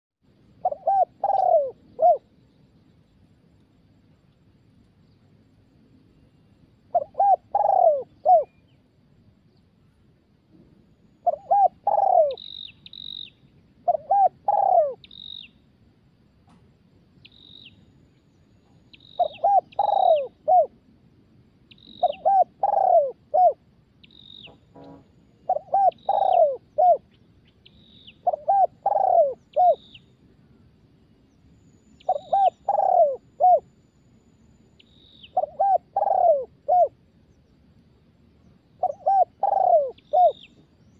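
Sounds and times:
dove cooing: 0.6 - 2.3, 6.9 - 8.6, 11.2 - 12.4, 13.8 - 15.1, 19.2 - 20.8, 22.0 - 23.6, 24.4 - 27.1, 28.1 - 30.0, 32.0 - 33.7, 35.2 - 37.0, 38.8 - 40.5
small bird chirping: 11.0 - 15.6, 17.2 - 20.7, 21.6 - 30.2, 31.3 - 33.7, 34.4 - 37.6, 38.4 - 40.9.

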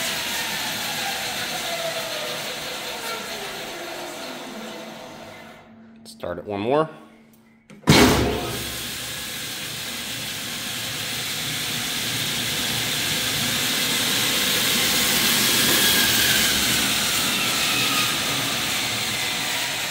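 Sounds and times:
band saw blade whirring: 10.4 - 19.9.

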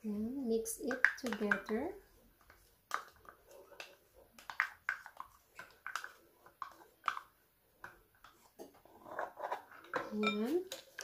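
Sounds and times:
spatula scraping plastic cup: 8.8 - 11.0.

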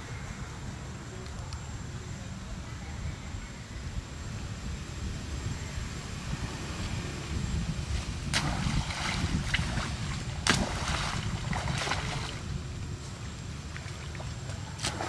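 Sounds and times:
wind rumble on microphone: 0.0 - 15.0
animals splashing in water: 7.8 - 12.6, 13.6 - 15.0.

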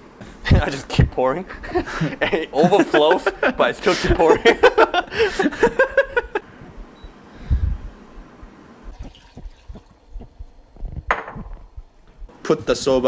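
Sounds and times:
liquid pouring into saucepan: 8.9 - 10.0.

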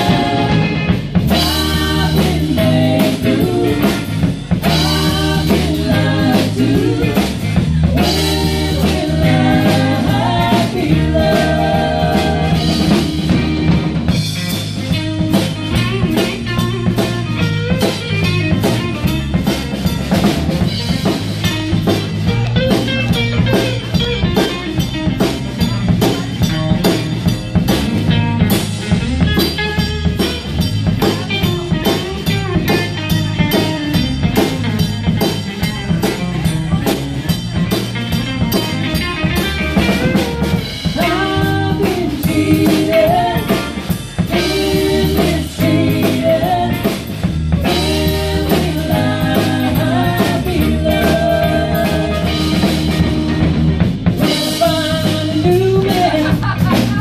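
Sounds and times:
women singing: 0.0 - 13.8, 40.8 - 53.0, 54.3 - 56.8
bass guitar: 0.0 - 57.0
drum kit beat: 0.0 - 57.0
electric guitars: 0.0 - 57.0.

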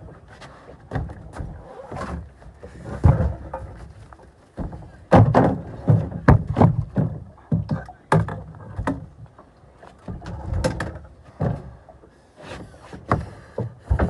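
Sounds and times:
knocks and thumps: 4.6 - 9.2, 13.0 - 14.0.

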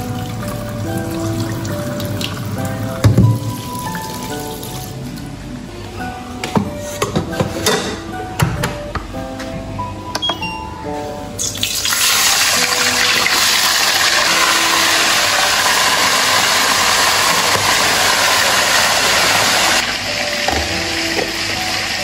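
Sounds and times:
light background music: 0.0 - 22.0
fish sizzling in hot oil: 11.4 - 22.0.

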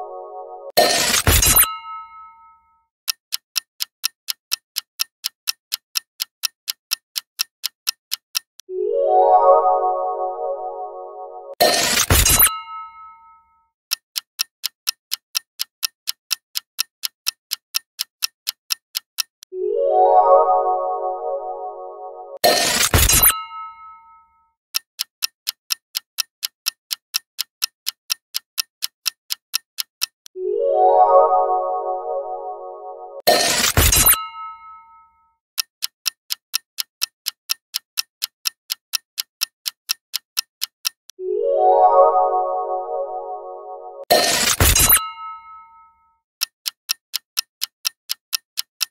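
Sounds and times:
clock ticking: 0.7 - 2.4, 3.1 - 9.9, 11.5 - 13.1, 13.9 - 19.5, 20.4 - 24.0, 24.7 - 30.4, 32.3 - 34.7, 35.6 - 41.2, 44.0 - 45.5, 46.4 - 48.9.

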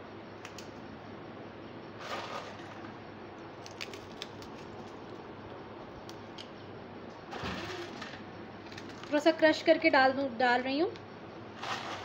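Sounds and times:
biscuits snapping and crumbling: 3.5 - 5.4.

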